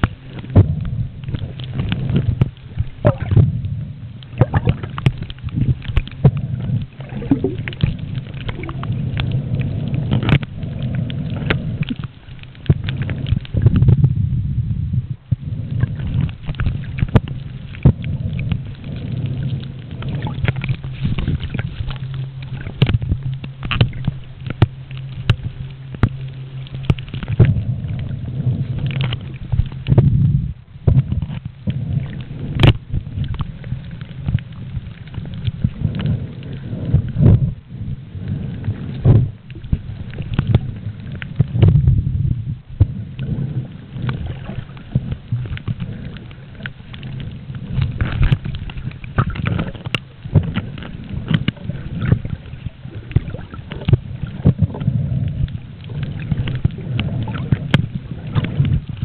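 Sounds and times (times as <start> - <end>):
clicks and crackles: 0.0 - 14.2, 15.2 - 59.0
steady low hum: 0.0 - 59.0
underwater water sloshing: 0.0 - 59.0.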